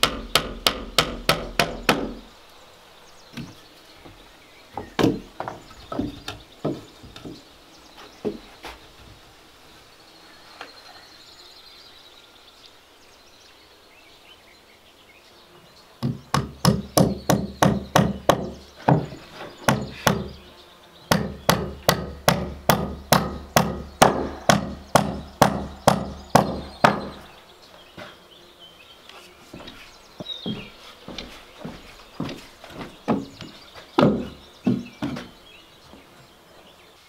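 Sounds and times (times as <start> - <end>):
hammer striking wood: 0.0 - 2.3, 4.8 - 6.8, 16.0 - 20.3, 21.1 - 27.2, 34.0 - 35.3.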